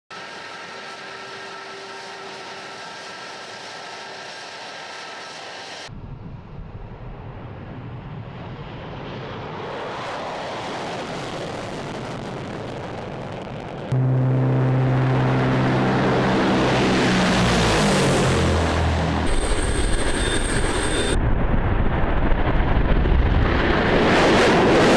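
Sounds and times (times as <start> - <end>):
jet engines whining: 0.2 - 5.9, 8.6 - 21.2
rushing jet takeoff noise: 13.7 - 21.2
deep steady drone: 13.9 - 21.5.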